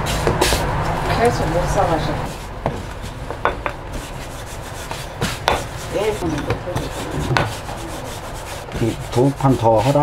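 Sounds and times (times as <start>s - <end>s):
rolling pin rubbing on dough: 2.2s - 10.0s
wood knocking on wood: 2.6s - 4.1s, 4.9s - 7.8s.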